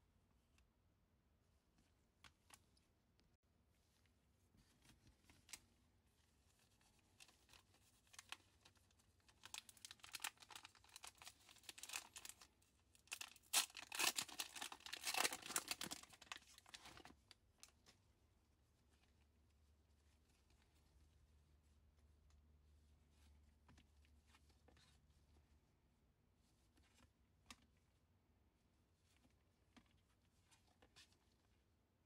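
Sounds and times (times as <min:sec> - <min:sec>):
foil wrapper crinkling and tearing: 0:09.3 - 0:17.1.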